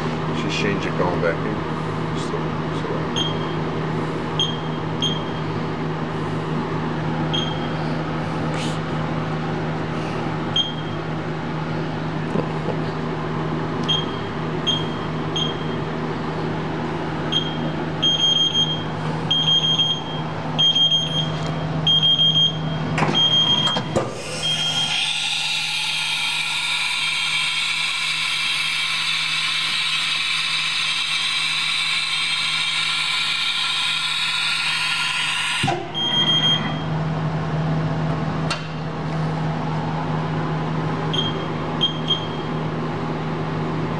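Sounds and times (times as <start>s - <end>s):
loud machine whine: 0.0s - 43.9s
steady machine hum: 0.0s - 43.9s
short electronic beeps: 36.0s - 36.9s, 41.2s - 42.5s.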